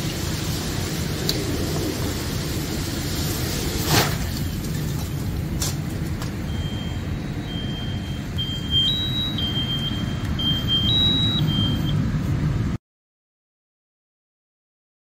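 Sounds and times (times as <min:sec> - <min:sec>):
low rumble: 0:00.0 - 0:12.8
electronic two-tone beeping: 0:06.5 - 0:12.0.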